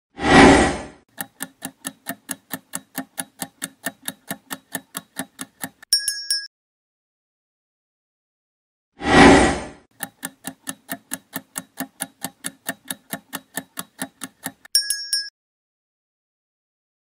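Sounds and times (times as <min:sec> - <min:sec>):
clock-like ticking: 0:01.1 - 0:06.1, 0:09.9 - 0:15.3.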